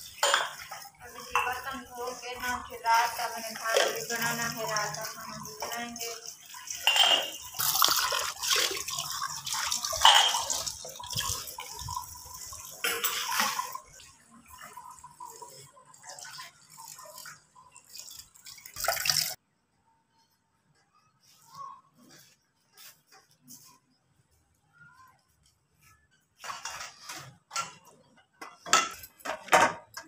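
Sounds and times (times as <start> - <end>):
dishes clattering: 0.0 - 1.9, 3.7 - 8.1, 9.6 - 11.6, 12.4 - 15.0, 26.4 - 30.0
tap water splashing over dishes: 0.0 - 19.4.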